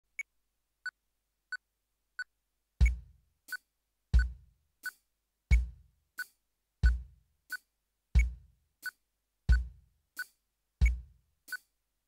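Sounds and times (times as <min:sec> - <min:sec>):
electronic drums: 0:02.8 - 0:03.6, 0:04.2 - 0:07.6, 0:08.2 - 0:11.7.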